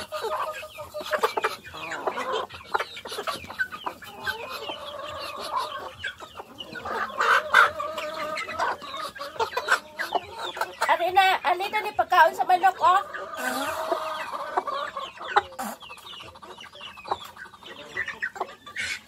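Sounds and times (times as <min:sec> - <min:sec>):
chickens clucking: 0:00.0 - 0:19.0
chickens pecking at feed: 0:00.0 - 0:19.0.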